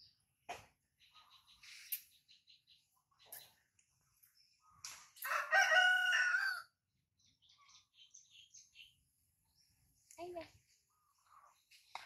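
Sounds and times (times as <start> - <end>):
rooster crowing: 5.2 - 6.8.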